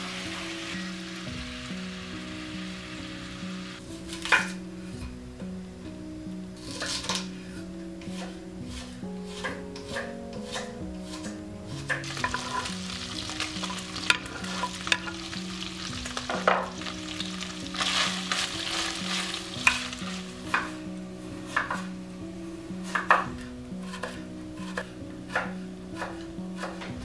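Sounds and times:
meat and onion sizzling: 0.0s - 27.0s
soft background music: 0.0s - 27.0s
wooden spoon scraping pot: 6.6s - 22.0s, 22.7s - 27.0s
knife chopping on wooden board: 22.8s - 27.0s.

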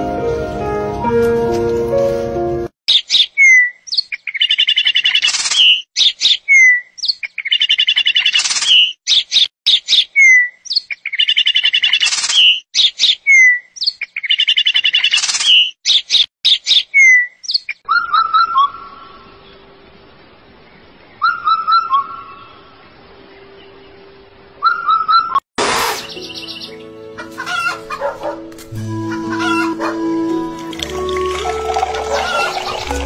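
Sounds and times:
bird chirping and trilling: 2.9s - 19.6s, 21.1s - 22.8s, 24.6s - 25.4s, 26.0s - 28.1s, 28.9s - 33.0s.

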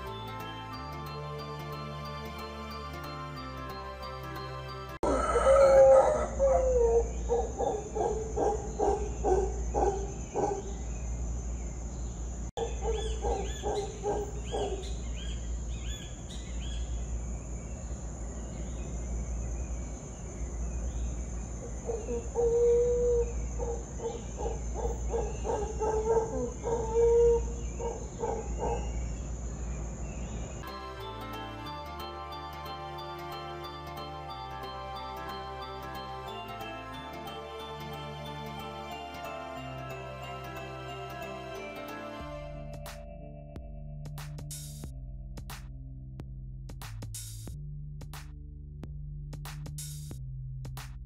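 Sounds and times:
deep pulsing animal calls: 21.6s - 29.2s.

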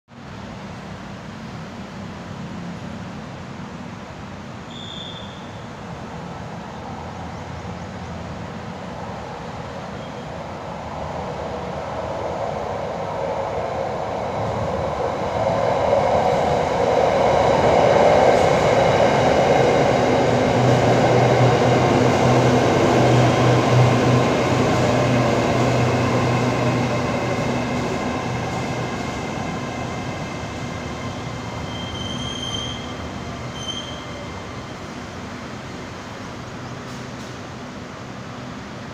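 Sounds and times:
train rumbling and braking: 0.2s - 38.9s.

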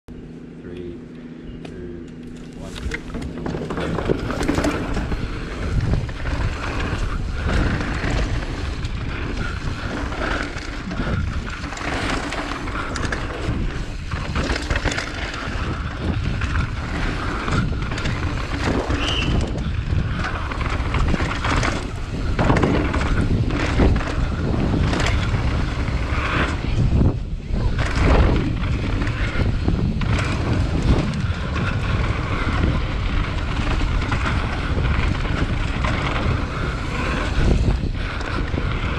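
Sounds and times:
bike knocks and rattles: 2.2s - 38.9s
tyres rolling over dirt: 2.4s - 38.9s
wind rush on microphone: 2.4s - 38.9s.

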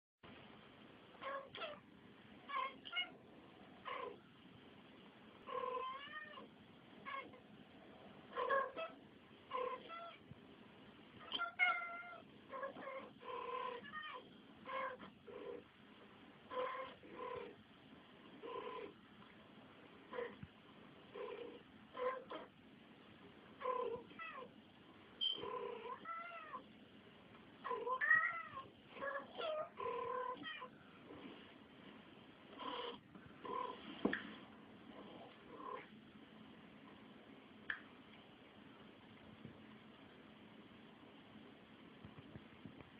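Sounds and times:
cats meowing: 25.8s - 26.6s, 27.7s - 30.7s.

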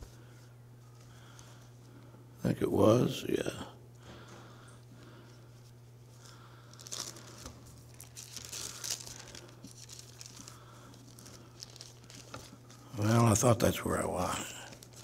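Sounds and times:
steady low hum: 0.0s - 15.0s
thin pages being leafed through: 6.7s - 13.0s, 14.6s - 15.0s.

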